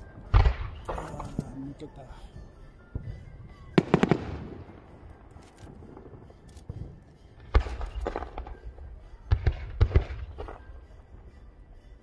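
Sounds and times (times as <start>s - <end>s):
firework bangs: 2.9s - 5.1s.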